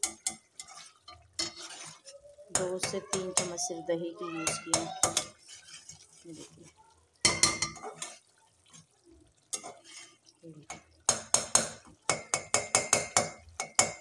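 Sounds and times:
spatula clanking against pot: 0.0s - 3.6s, 4.4s - 5.6s, 7.2s - 8.2s, 10.7s - 14.0s
metal spatula scraping a pot: 0.0s - 11.6s.

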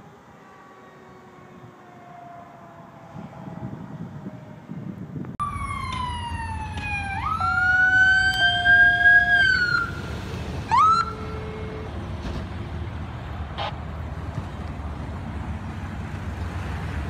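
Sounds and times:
vehicle and road noise: 0.0s - 17.0s
siren whoop: 0.5s - 10.1s, 10.7s - 11.8s
electronic siren wailing: 5.4s - 10.1s, 10.7s - 11.8s.

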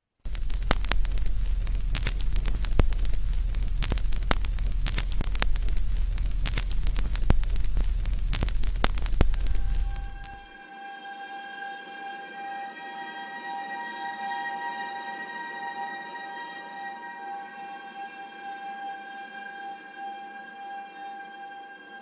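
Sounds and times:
fire hissing and crackling: 0.3s - 10.5s.

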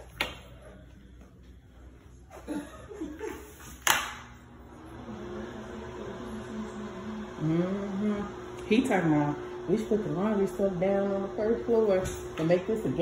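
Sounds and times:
soft chuckling: 2.3s - 3.7s
low voices: 4.9s - 13.0s.

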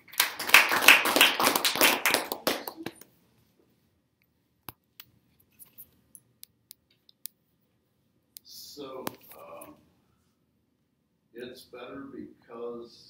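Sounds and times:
small group clapping: 0.0s - 3.2s.

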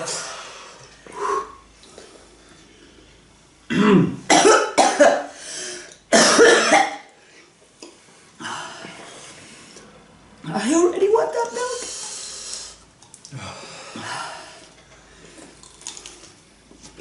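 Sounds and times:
people coughing: 3.7s - 5.3s, 6.1s - 7.1s.

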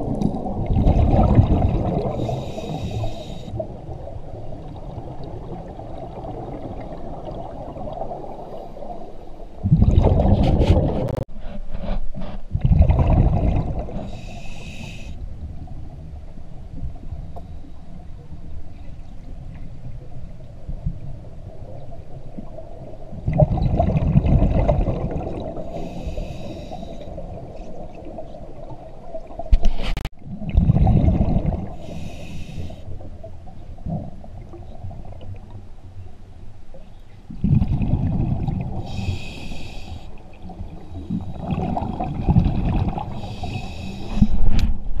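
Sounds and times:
bubbling exhaled air underwater: 0.0s - 8.5s, 9.6s - 11.3s, 12.5s - 15.0s, 22.4s - 29.6s, 30.2s - 32.3s, 37.3s - 39.8s, 40.4s - 44.6s.

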